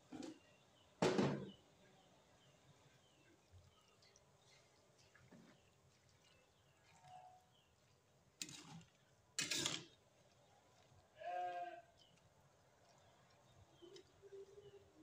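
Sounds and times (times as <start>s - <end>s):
metal spoon scraping wok: 9.4s - 10.0s.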